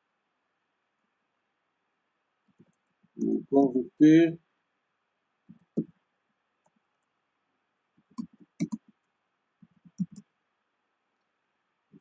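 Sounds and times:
computer keyboard typing: 8.1 - 8.9, 9.6 - 10.2.

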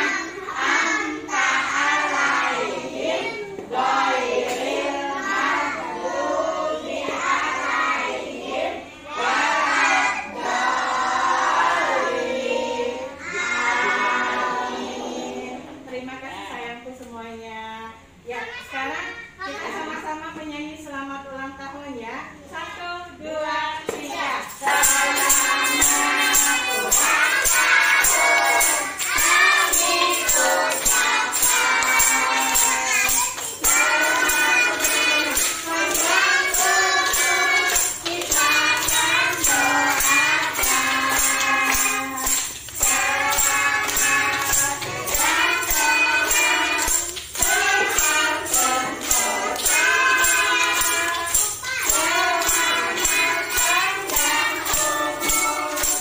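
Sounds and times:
song with jingling beat: 24.2 - 56.0.

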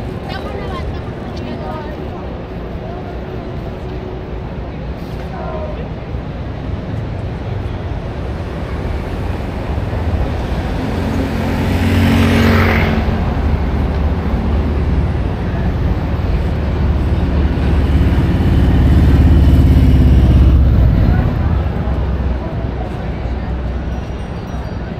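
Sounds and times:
traffic engines rumbling: 0.0 - 24.9
vehicle passing: 6.3 - 23.9.

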